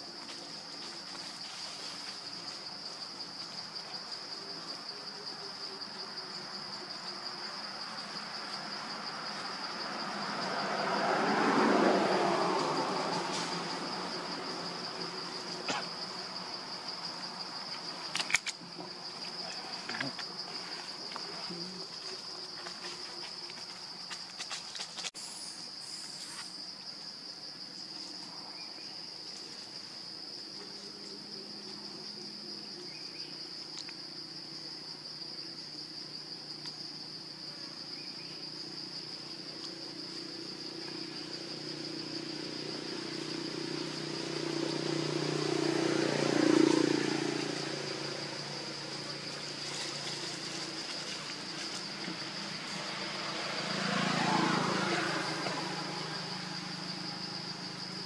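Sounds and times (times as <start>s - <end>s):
motor vehicle passing: 7.6s - 18.1s, 38.5s - 58.0s
high-pitched insect drone: 25.1s - 58.0s.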